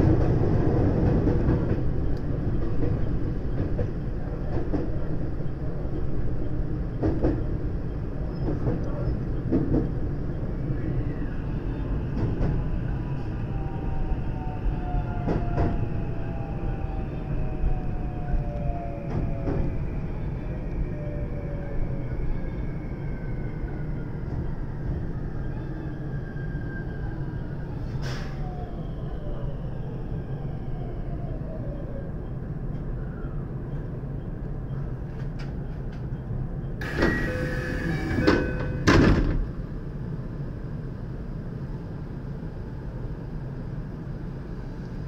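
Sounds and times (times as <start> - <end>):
train wheels rumbling on rail: 0.0 - 27.2, 33.7 - 42.7
electric train humming: 36.8 - 42.6.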